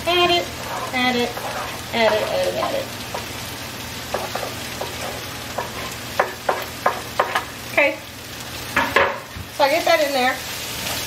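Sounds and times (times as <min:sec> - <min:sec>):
vegetables sizzling in a skillet: 0:00.0 - 0:11.0
wooden spoon knocking on cutting board: 0:04.1 - 0:07.4.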